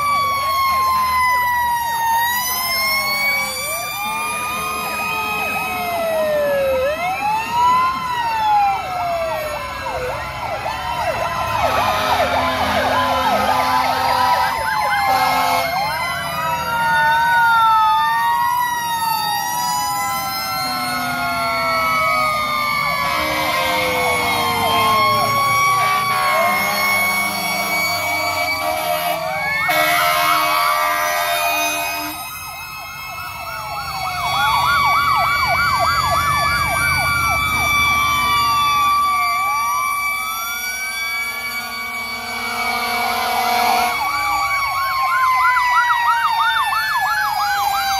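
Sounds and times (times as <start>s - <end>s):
sirens wailing: 0.0s - 47.9s
horn blasts: 11.6s - 15.9s, 22.9s - 32.3s, 41.3s - 44.2s.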